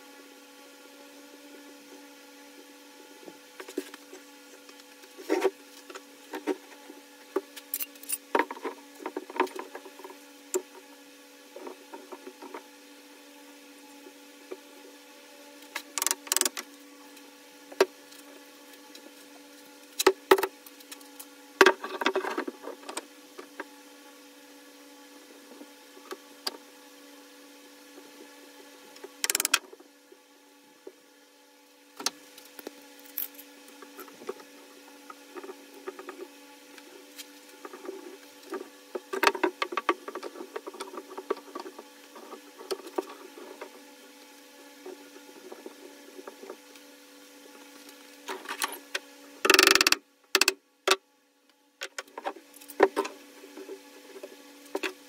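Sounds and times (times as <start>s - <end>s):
sharp clicks and knocks: 29.2s - 29.6s, 49.4s - 51.0s.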